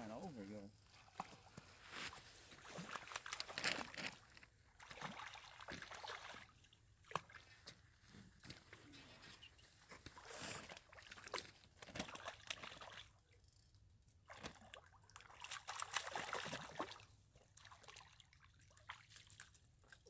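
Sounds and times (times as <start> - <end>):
fish splashing in water: 4.8 - 7.5, 10.1 - 13.2, 14.3 - 19.5.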